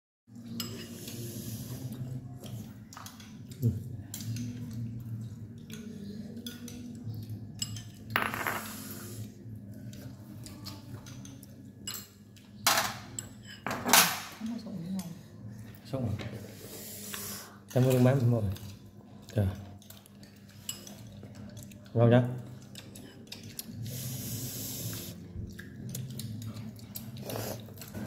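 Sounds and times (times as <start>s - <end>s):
utensils clinking against bowls: 0.4s - 15.2s, 17.6s - 24.0s.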